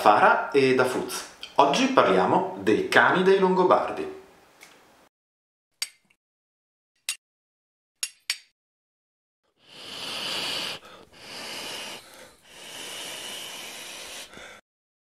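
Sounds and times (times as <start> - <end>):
person blowing on ember: 9.5 - 14.6.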